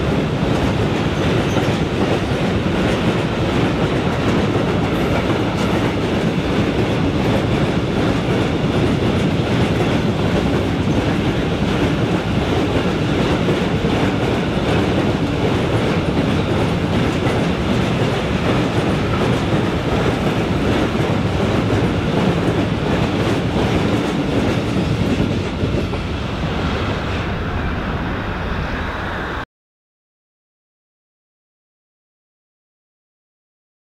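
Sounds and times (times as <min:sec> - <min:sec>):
train wheels rolling on rails: 0:00.0 - 0:29.4.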